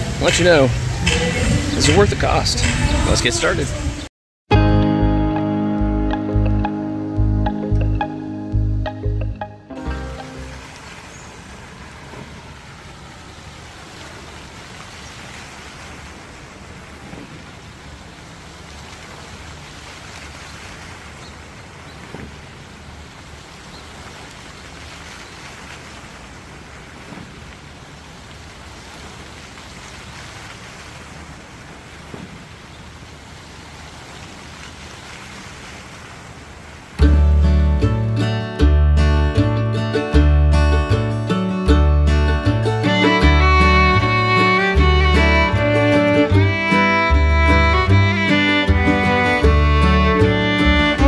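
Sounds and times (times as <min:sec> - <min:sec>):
fountain water splashing: 0:00.0 - 0:04.1, 0:09.8 - 0:37.8, 0:42.7 - 0:51.0.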